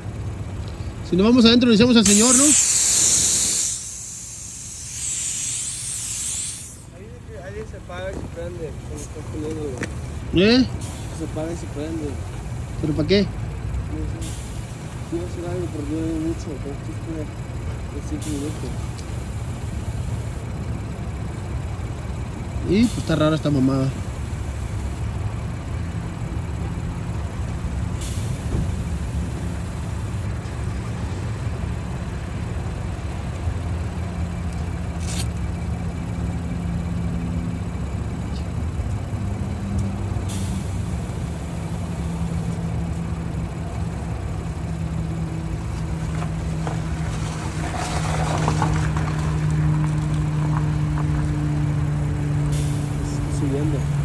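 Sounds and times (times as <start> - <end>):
motor humming: 2.0 - 7.0
short hisses: 2.0 - 7.0, 10.8 - 12.8, 14.2 - 15.2, 28.0 - 30.3, 40.3 - 42.5, 52.5 - 53.3.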